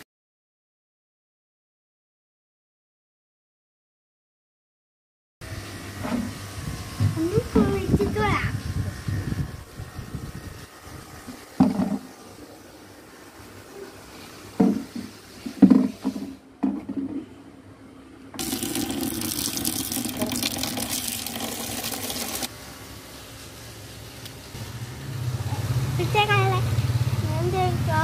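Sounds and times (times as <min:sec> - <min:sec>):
water pouring into plastic tub: 0:18.4 - 0:22.5.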